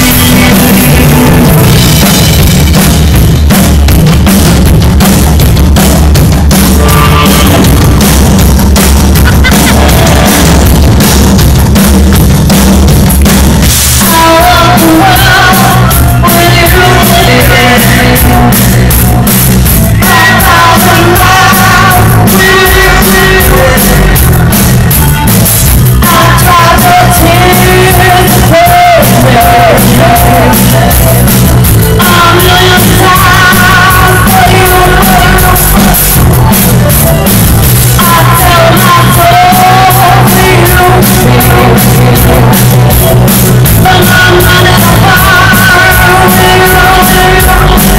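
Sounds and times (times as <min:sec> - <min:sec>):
loud rock band playing: 0:00.0 - 0:47.9
woman singing into microphone: 0:14.1 - 0:19.2, 0:26.0 - 0:31.0, 0:32.0 - 0:35.8, 0:38.0 - 0:42.7, 0:43.8 - 0:47.9.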